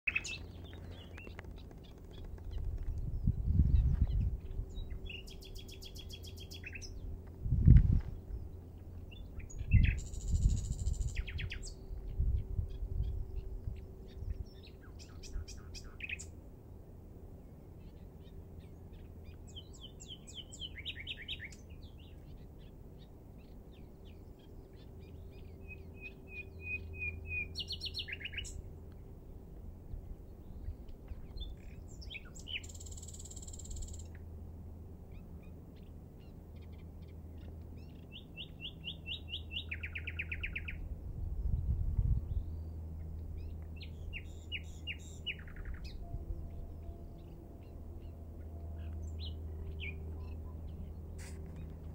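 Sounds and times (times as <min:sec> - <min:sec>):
nightingale singing: 0:00.1 - 0:07.2, 0:08.2 - 0:16.4, 0:17.8 - 0:28.7, 0:30.4 - 0:34.2, 0:35.1 - 0:40.9, 0:42.3 - 0:51.9
low rumble: 0:00.2 - 0:19.8, 0:40.2 - 0:51.9.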